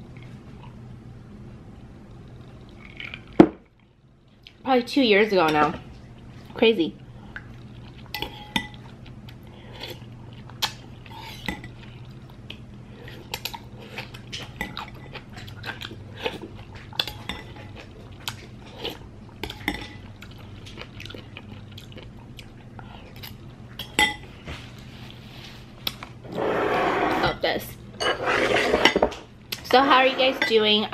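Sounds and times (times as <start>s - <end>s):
chewing: 2.1s - 4.6s, 7.2s - 23.6s.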